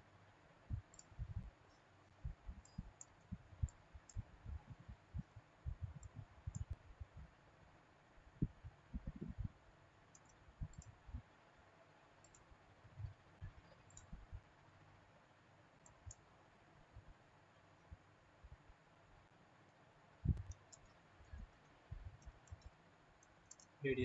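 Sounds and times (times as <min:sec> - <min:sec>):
computer mouse clicking: 0:00.7 - 0:07.3, 0:08.4 - 0:11.0, 0:12.1 - 0:14.4, 0:15.8 - 0:16.3, 0:20.3 - 0:23.8.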